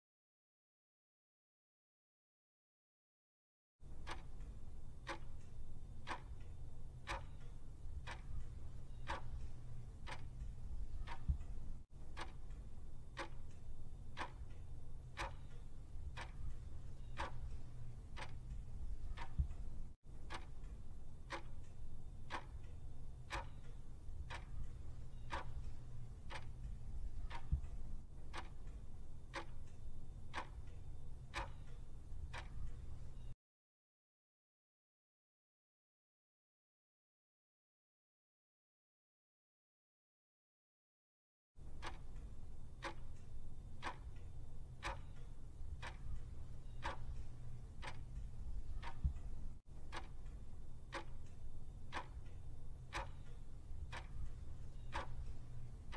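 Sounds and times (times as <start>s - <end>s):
clock ticking: 3.8s - 33.4s, 41.6s - 55.9s
low hum: 3.9s - 33.3s.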